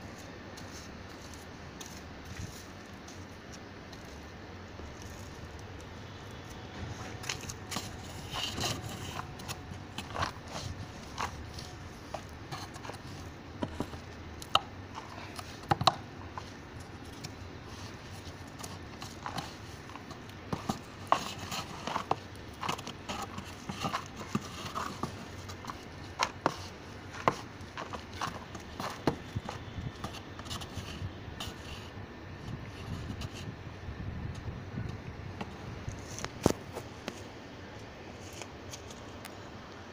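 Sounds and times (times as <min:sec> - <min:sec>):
compost scraping in plastic drum: 0:06.7 - 0:14.1, 0:17.2 - 0:31.9.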